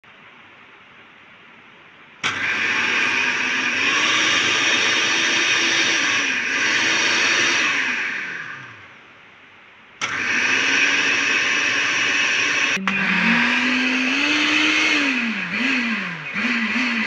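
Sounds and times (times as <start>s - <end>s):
food processor motor whine: 2.2s - 8.9s, 10.0s - 17.0s.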